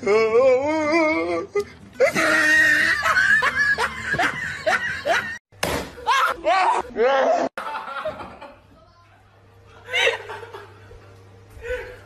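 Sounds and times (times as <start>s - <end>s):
person laughing hard: 2.0s - 5.4s.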